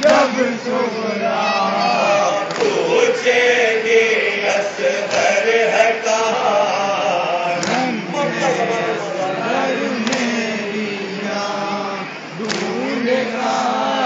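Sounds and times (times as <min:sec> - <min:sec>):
men chanting together: 0:00.0 - 0:14.0.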